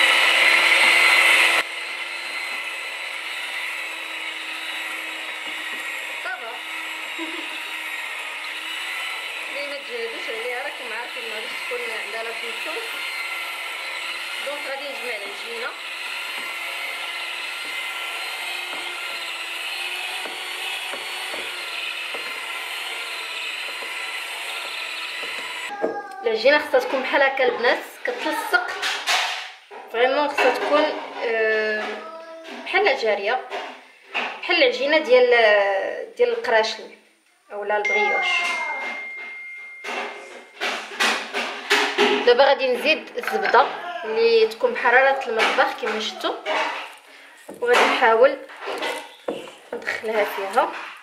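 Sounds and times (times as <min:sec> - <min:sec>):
electric hand mixer whining: 0:00.0 - 0:25.7, 0:43.0 - 0:51.0.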